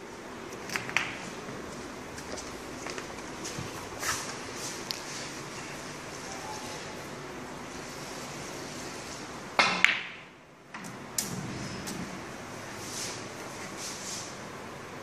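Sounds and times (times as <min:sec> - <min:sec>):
background hiss: 0:00.0 - 0:15.0
snooker balls clicking: 0:00.5 - 0:03.3, 0:09.6 - 0:12.1.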